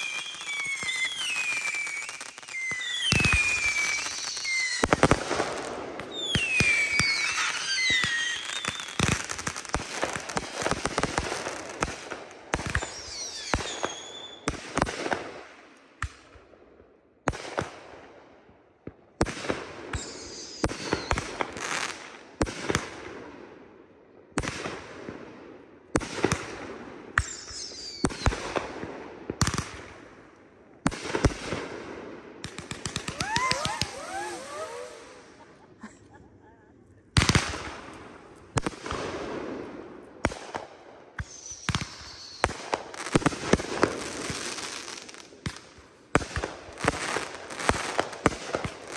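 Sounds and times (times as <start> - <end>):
falling firework whistles: 0.0 - 9.6, 12.7 - 14.5, 19.9 - 21.2, 27.2 - 28.5, 32.7 - 35.9, 41.2 - 43.2
fireworks crackling: 0.0 - 14.6, 32.4 - 36.2, 37.1 - 48.9
fireworks launching and bursting: 0.0 - 16.3, 26.0 - 36.0, 37.1 - 48.9.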